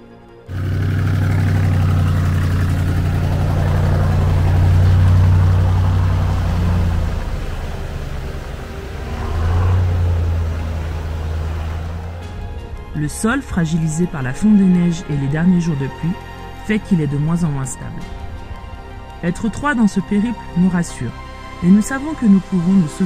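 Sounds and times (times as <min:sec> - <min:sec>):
diesel truck engine running: 0:00.5 - 0:16.6.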